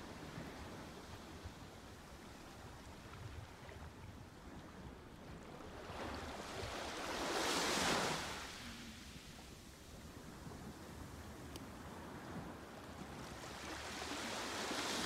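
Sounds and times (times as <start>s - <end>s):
low rumble of surf: 0.0s - 15.0s
ocean wave breaking: 6.0s - 9.2s.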